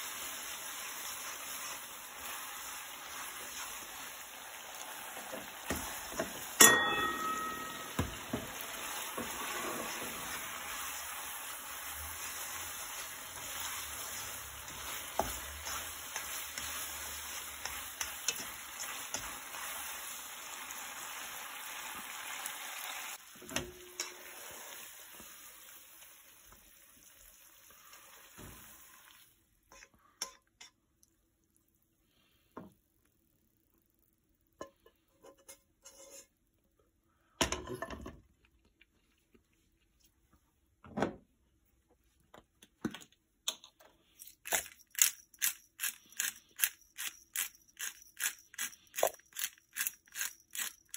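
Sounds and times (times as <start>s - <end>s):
pasta sizzling in frying pan: 0.0s - 29.5s
tongs tapping on plate: 6.6s - 8.4s
metal tongs clicking on pan: 17.6s - 19.3s, 23.9s - 24.2s.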